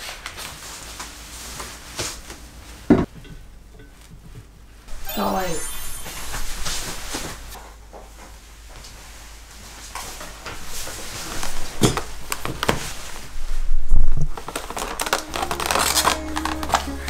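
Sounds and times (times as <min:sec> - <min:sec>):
paper rustling: 0:14.3 - 0:17.0
soft music: 0:15.0 - 0:17.0.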